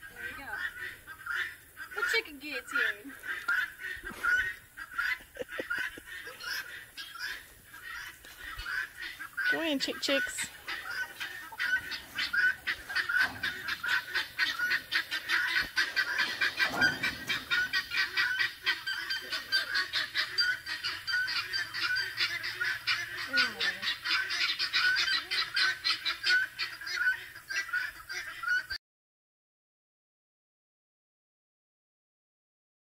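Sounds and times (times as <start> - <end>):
farm fowl calling: 0.0 - 28.8
low sliding bird call: 6.2 - 22.1.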